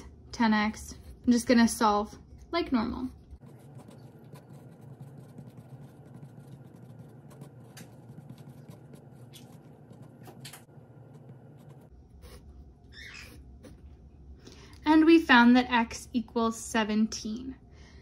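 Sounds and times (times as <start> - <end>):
low room hum: 0.0 - 18.0
pen scratching on paper: 3.4 - 12.4.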